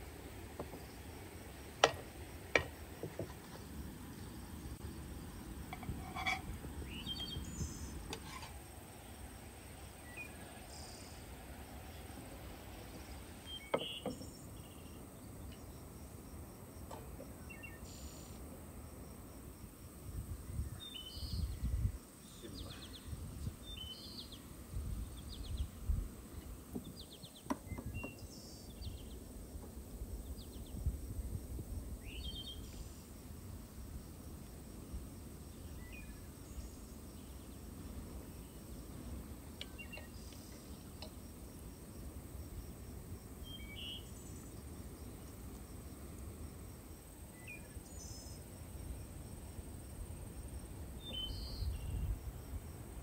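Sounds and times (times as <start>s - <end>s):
insect trill: 0.0s - 26.4s, 27.1s - 53.0s
small birds chirping: 6.2s - 9.3s, 10.0s - 15.9s, 17.3s - 18.4s, 20.6s - 29.3s, 35.5s - 41.2s, 43.4s - 45.5s, 51.0s - 52.3s.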